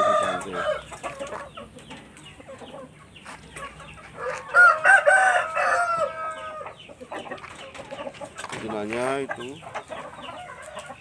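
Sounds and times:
rooster crowing: 0:00.0 - 0:00.9, 0:04.2 - 0:06.8.

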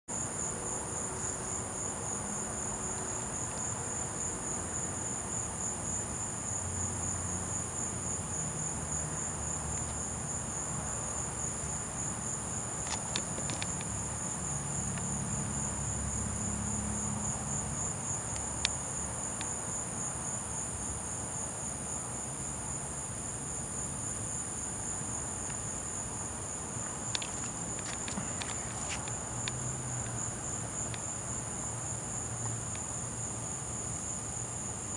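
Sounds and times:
crickets trilling: 0:00.1 - 0:34.9.

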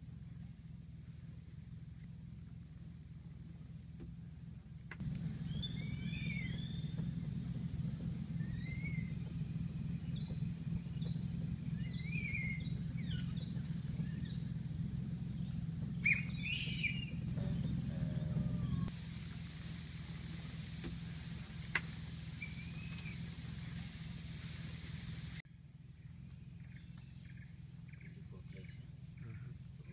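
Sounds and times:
high insect drone: 0:00.0 - 0:25.4
low steady hum: 0:00.0 - 0:29.9
birds chirping: 0:05.0 - 0:18.9, 0:20.0 - 0:25.4.

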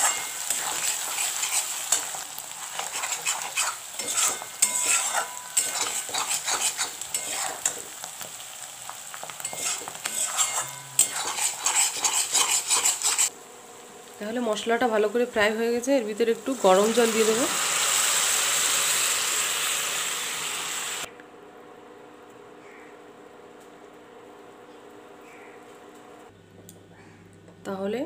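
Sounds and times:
spatula scraping pan: 0:00.0 - 0:08.4, 0:09.2 - 0:13.3
paste sizzling in oil: 0:00.0 - 0:21.1.

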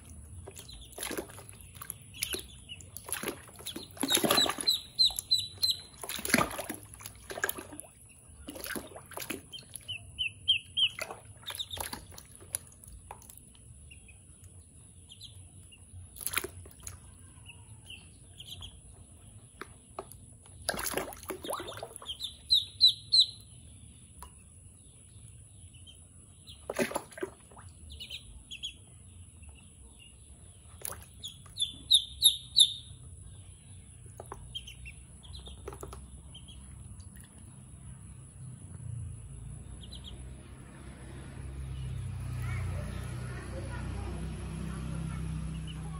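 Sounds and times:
water splashing: 0:00.0 - 0:13.4, 0:16.1 - 0:17.2, 0:20.5 - 0:23.0, 0:26.6 - 0:28.1
ducklings peeping: 0:00.0 - 0:40.6, 0:44.6 - 0:45.9.

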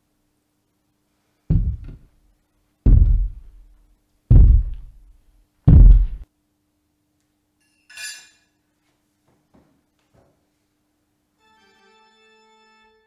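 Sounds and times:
heavy booming hits: 0:01.5 - 0:02.0, 0:02.9 - 0:03.6, 0:04.3 - 0:05.0, 0:05.7 - 0:06.2.

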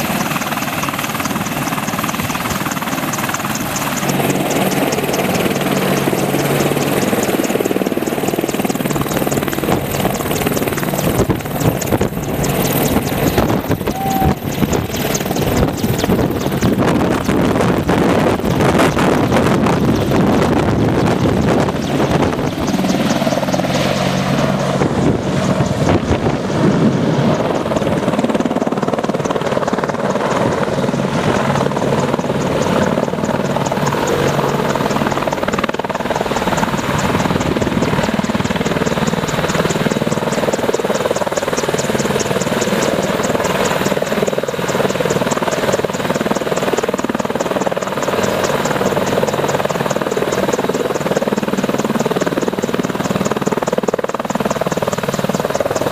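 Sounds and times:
helicopter hovering: 0:00.0 - 0:55.9.

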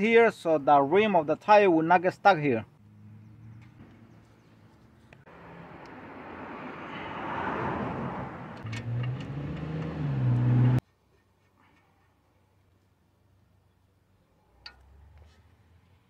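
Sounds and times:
low engine hum: 0:02.8 - 0:10.8.

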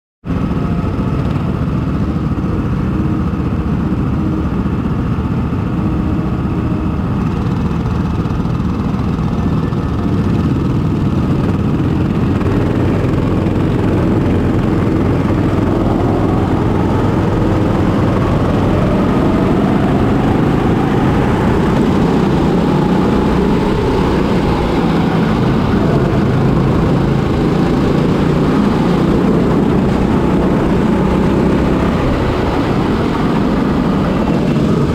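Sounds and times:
kart engine revving: 0:00.3 - 0:34.9
other kart engines: 0:00.3 - 0:34.9.

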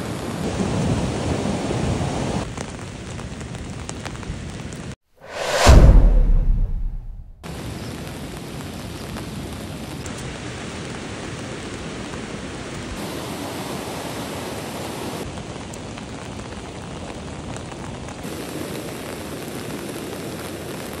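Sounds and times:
heavy rain pouring: 0:00.0 - 0:05.0, 0:07.4 - 0:21.0
stream rushing: 0:10.2 - 0:15.3.

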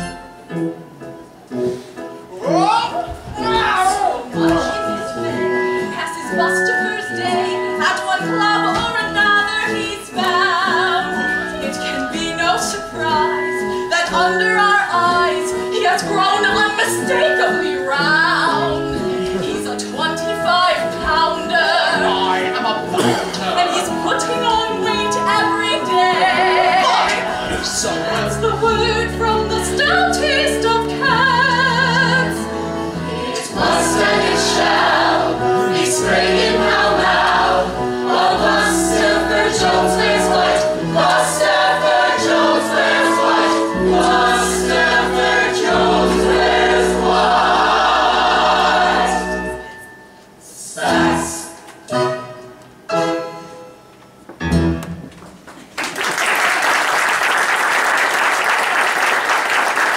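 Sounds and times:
instrumental accompaniment: 0:00.0 - 0:55.5
ensemble singing in chorus: 0:25.8 - 0:29.9, 0:30.8 - 0:49.8, 0:50.6 - 0:51.7.

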